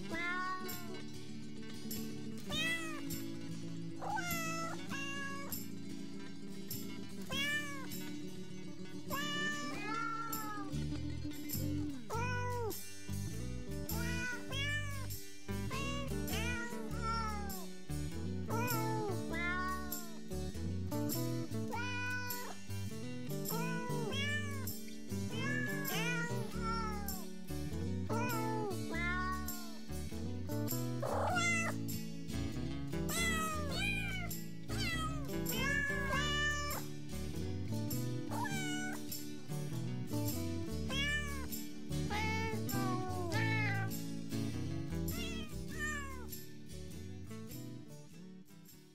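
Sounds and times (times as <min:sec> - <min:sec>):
cat meows singing a tune: 0:00.0 - 0:01.0, 0:02.5 - 0:03.1, 0:04.0 - 0:05.5, 0:07.3 - 0:07.9, 0:09.1 - 0:10.9, 0:11.8 - 0:12.8, 0:13.9 - 0:17.7, 0:18.4 - 0:20.2, 0:21.7 - 0:22.6, 0:23.5 - 0:24.7, 0:25.3 - 0:27.3, 0:28.1 - 0:29.8, 0:31.0 - 0:31.8, 0:33.1 - 0:36.8, 0:38.3 - 0:39.0, 0:40.9 - 0:41.5, 0:42.1 - 0:44.0, 0:45.1 - 0:46.3.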